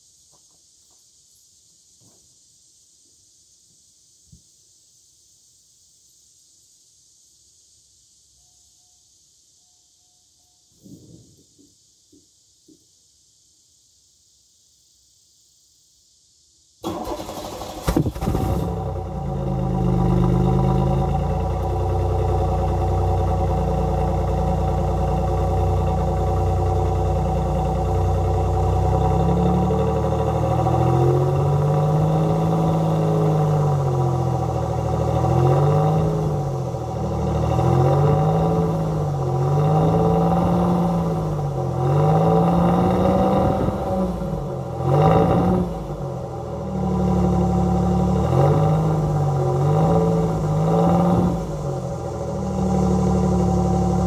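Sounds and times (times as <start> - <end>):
car engine starting and revving: 16.8 - 54.0.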